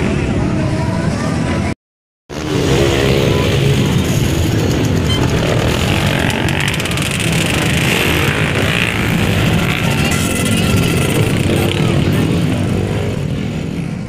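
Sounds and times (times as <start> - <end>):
dirt bike engines revving: 2.3 - 14.0.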